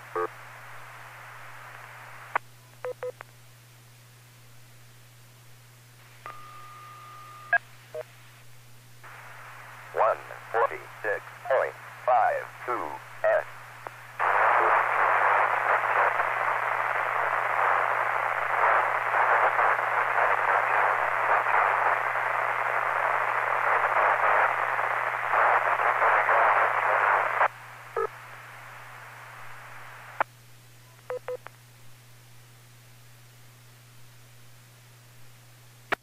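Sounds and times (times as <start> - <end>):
radio static hiss: 0.0 - 3.3, 6.0 - 6.4, 7.5 - 31.6
steady low hum: 0.0 - 36.0.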